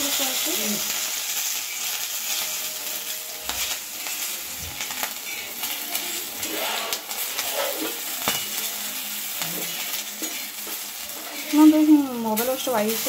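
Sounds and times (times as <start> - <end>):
chillies sizzling in hot oil: 0.0 - 13.0
metal spatula scraping pan: 5.2 - 8.6, 9.5 - 13.0.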